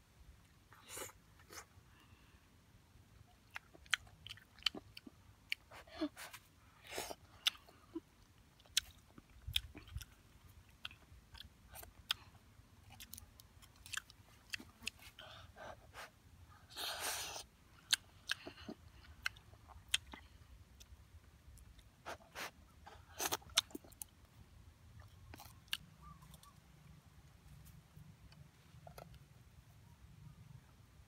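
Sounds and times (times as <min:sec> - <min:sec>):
person chewing and eating: 0:03.3 - 0:24.3, 0:24.9 - 0:26.6, 0:27.3 - 0:29.3.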